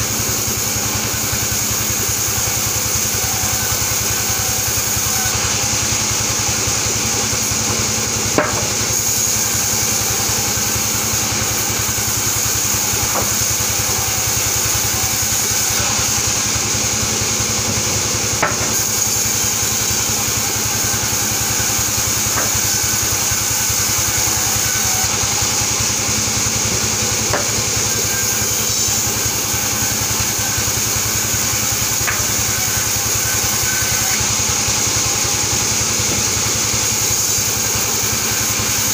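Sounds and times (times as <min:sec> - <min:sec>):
band saw mill droning: 0:00.0 - 0:38.9
sharp knocks: 0:08.4 - 0:08.8, 0:18.4 - 0:18.8.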